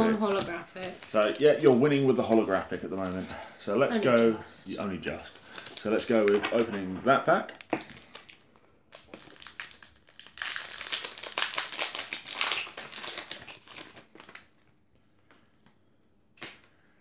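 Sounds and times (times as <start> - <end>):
foil wrapper crinkling: 0.2 - 3.4, 4.7 - 14.7.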